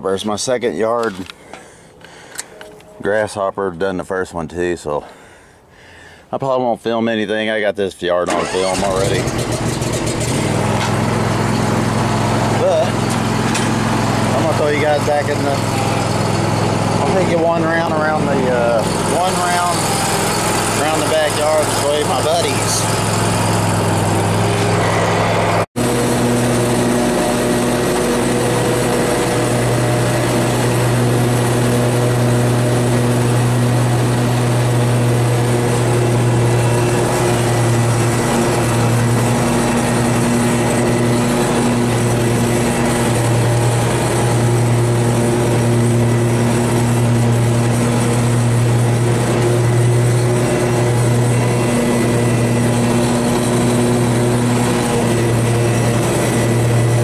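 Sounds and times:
riding mower engine running: 0.0 - 3.4, 8.3 - 57.0.

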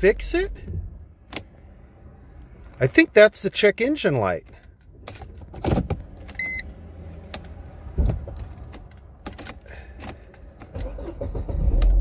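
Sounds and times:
low rumble: 0.0 - 2.7.

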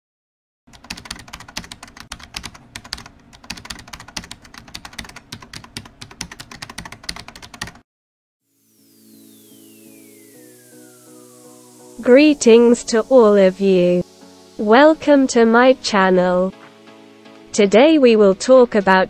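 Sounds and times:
music: 8.4 - 19.0
falling tone sweep: 8.5 - 14.2.

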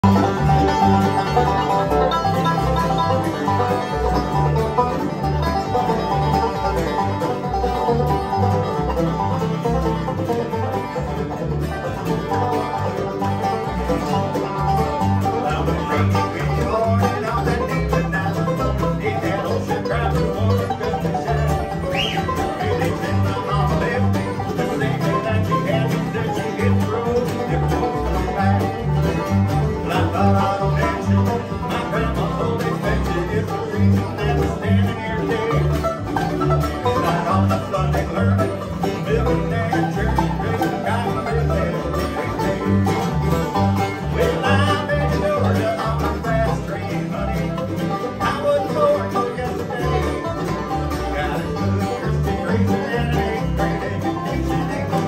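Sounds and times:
acoustic guitar strumming: 0.0 - 55.0
banjo picking: 0.0 - 55.0
mandolin: 0.0 - 55.0
upright bass: 0.0 - 55.0.

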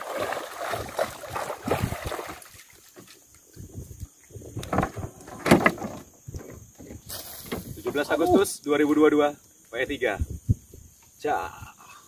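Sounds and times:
water splashing: 0.0 - 3.3.

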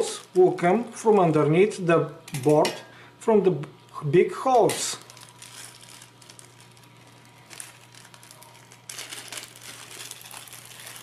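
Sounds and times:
plastic bag crinkling: 0.0 - 1.3, 4.6 - 11.0.

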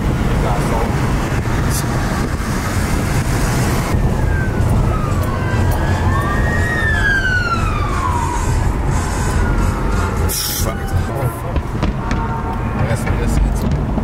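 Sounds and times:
road noise inside car: 0.0 - 14.0
siren wailing: 3.2 - 13.1.

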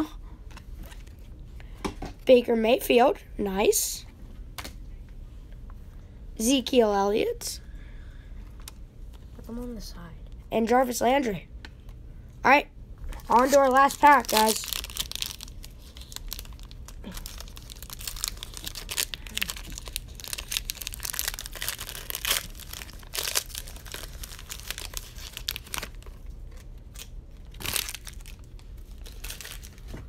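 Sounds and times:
plastic wrapper crinkling: 13.1 - 30.0.

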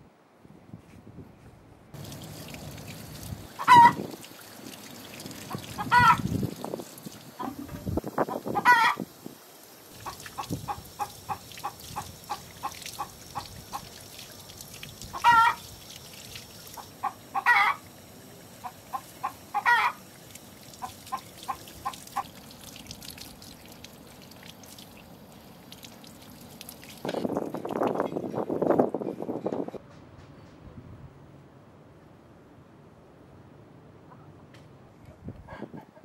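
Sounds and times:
chicken clucking: 3.6 - 4.0, 5.8 - 6.2, 7.4 - 9.0, 17.0 - 17.8, 18.6 - 20.0
chicken loud call: 3.6 - 4.0, 5.5 - 6.3, 8.3 - 9.1, 15.1 - 15.7, 17.0 - 17.9, 18.6 - 20.0.

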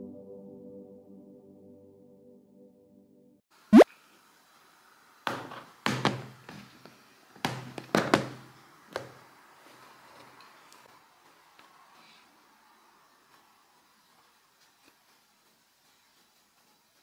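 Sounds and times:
sharp knocks and thuds: 5.3 - 6.6.

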